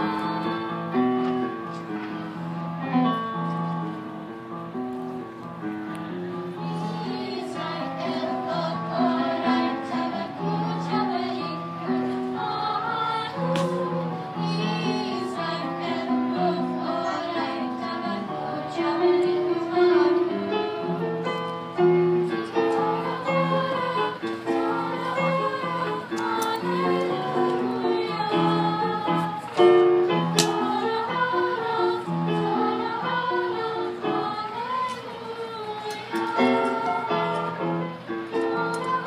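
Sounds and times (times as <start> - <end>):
children's choir singing: 0.0 - 3.2, 6.0 - 39.0.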